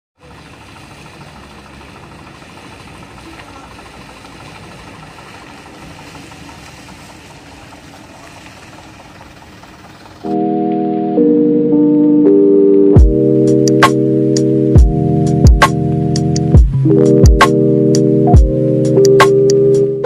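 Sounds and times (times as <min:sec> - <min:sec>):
diesel truck engine droning: 0:00.2 - 0:20.0
music with sustained keyboard notes: 0:10.2 - 0:20.0.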